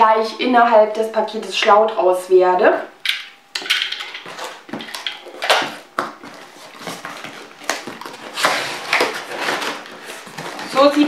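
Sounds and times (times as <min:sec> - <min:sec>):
cardboard and tape rustling: 0:03.8 - 0:11.0.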